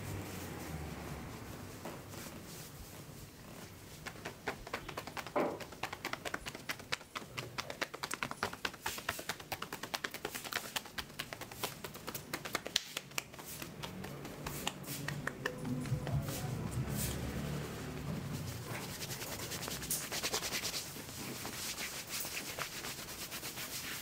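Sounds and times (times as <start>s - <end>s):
palms slapping on arm: 4.0s - 17.3s.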